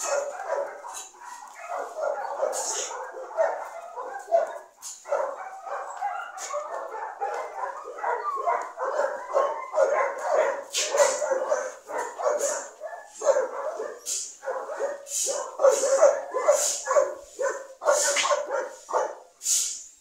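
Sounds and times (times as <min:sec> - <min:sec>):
dog whining and yipping: 0:07.8 - 0:10.0.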